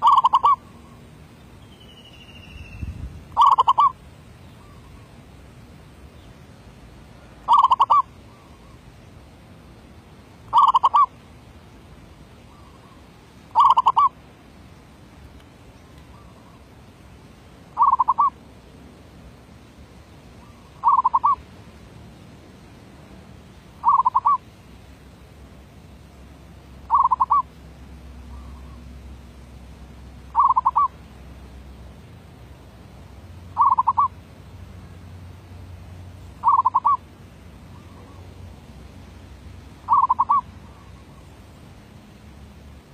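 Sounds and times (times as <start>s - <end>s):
dove cooing: 0.0s - 0.8s, 3.4s - 4.0s, 7.5s - 8.8s, 10.5s - 11.1s, 13.5s - 14.1s, 17.8s - 18.4s, 20.4s - 21.4s, 23.8s - 24.4s, 26.9s - 27.5s, 30.4s - 30.9s, 33.6s - 34.1s, 36.4s - 37.0s, 37.7s - 38.4s, 39.9s - 41.3s.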